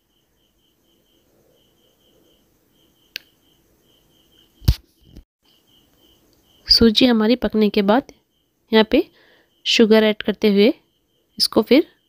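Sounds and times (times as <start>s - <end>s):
faint high chirping: 0.0s - 12.0s.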